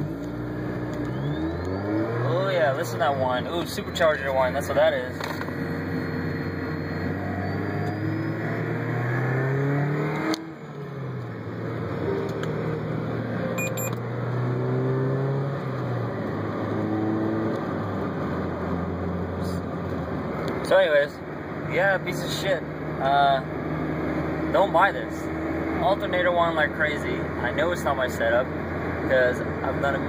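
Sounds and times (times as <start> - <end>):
car engine accelerating: 0.0 - 30.0.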